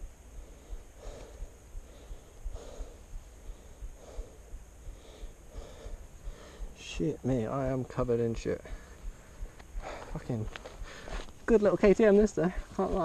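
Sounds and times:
man breathing hard: 0.2s - 6.8s, 8.6s - 11.2s.

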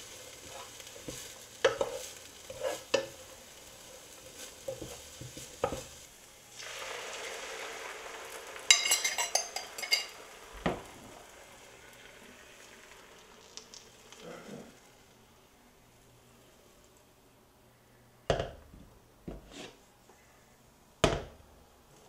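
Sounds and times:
vegetables sizzling in a frying pan: 0.0s - 17.1s
utensil clinking against pan: 8.7s - 10.2s
knock on pan: 10.6s - 10.9s, 18.3s - 18.6s, 21.0s - 21.4s.

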